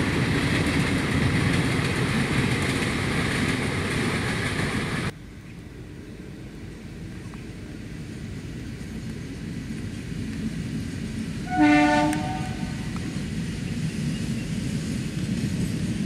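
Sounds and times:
train rumble: 0.0 - 16.0
locomotive horn blast: 11.4 - 13.0.

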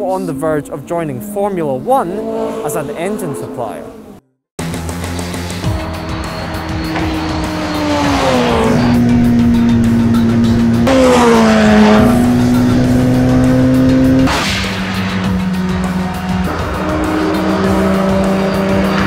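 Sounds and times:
racing engine at speed: 0.0 - 19.0.

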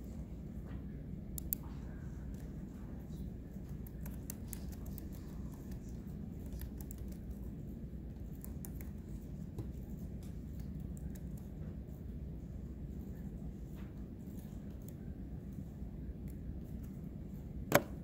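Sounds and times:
low room hum: 0.0 - 18.0
laptop keys typing: 3.5 - 7.5.

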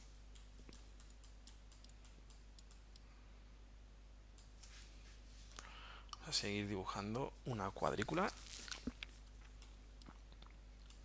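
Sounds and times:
keyboard and mouse clicking: 0.3 - 3.0.

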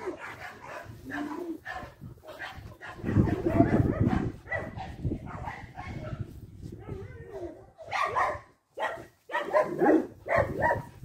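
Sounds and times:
dog whimpering and barking: 6.8 - 8.4.

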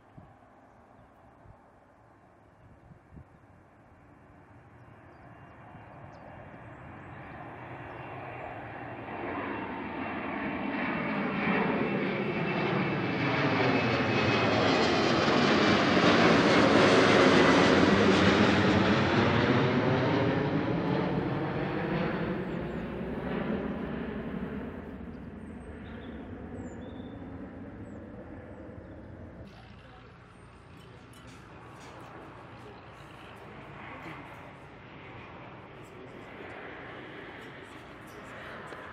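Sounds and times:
jet airliner flying overhead: 0.0 - 38.9
faint high jet whine: 3.7 - 38.9.

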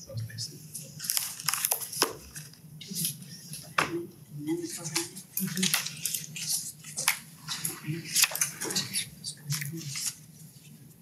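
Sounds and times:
faint low murmuring: 0.0 - 1.0, 2.8 - 10.2
paper rustling: 0.8 - 3.7, 4.9 - 10.8.

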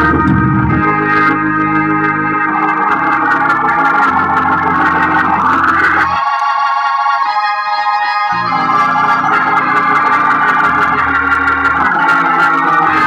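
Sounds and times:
sustained low bass notes: 0.0 - 6.2
organ chords: 0.0 - 13.0.

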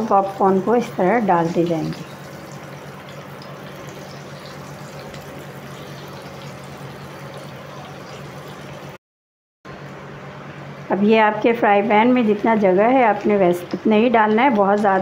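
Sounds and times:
food deep-frying in oil: 0.1 - 9.0.

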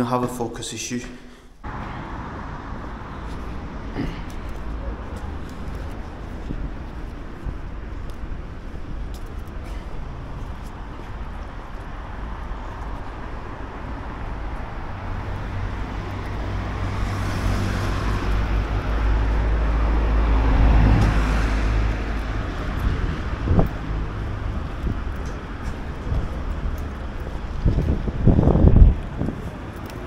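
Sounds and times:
road traffic noise: 1.5 - 30.0
vehicle engine passing close: 14.7 - 29.6.

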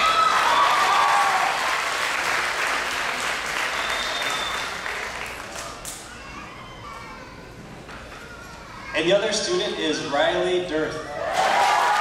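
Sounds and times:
audience applauding: 0.0 - 6.0, 11.3 - 12.0.

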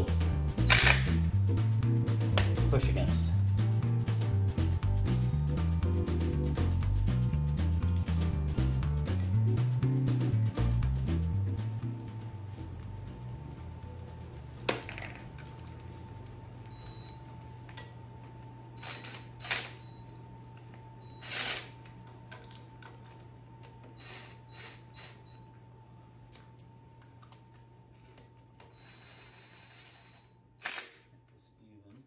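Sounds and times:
steady low hum: 0.0 - 32.0
wrench metallic clicks and clanks: 0.7 - 1.2.

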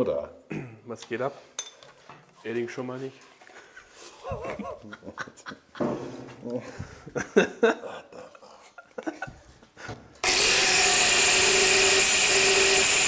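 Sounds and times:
power tool whining: 10.2 - 13.0.

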